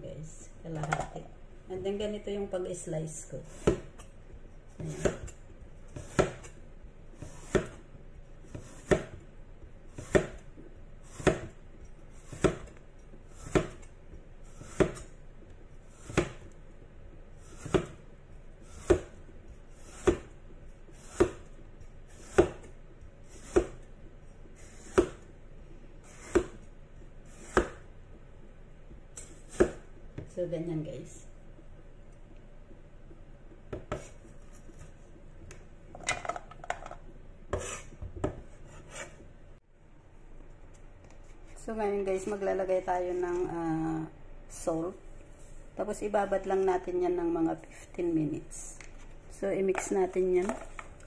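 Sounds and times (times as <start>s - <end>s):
cleaver chopping on wooden board: 6.0s - 6.5s, 7.4s - 7.8s, 8.5s - 9.2s, 10.0s - 10.4s, 11.2s - 11.5s, 12.3s - 12.7s, 13.4s - 13.8s, 14.6s - 15.0s, 20.0s - 20.3s, 21.1s - 21.4s, 26.2s - 26.6s.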